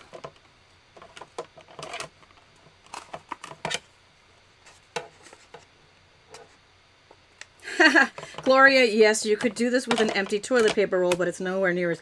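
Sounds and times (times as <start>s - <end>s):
plastic plates clicking and clattering: 9.9s - 11.2s.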